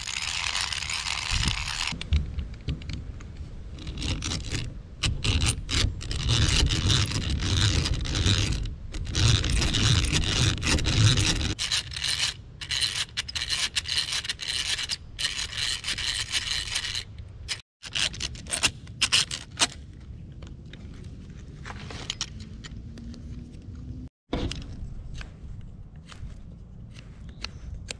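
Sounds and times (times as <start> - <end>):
drill bit grinding into wood: 0.0 - 2.0
hand-cranked drill boring wood: 0.0 - 2.0
tools scraping wood: 0.0 - 20.0.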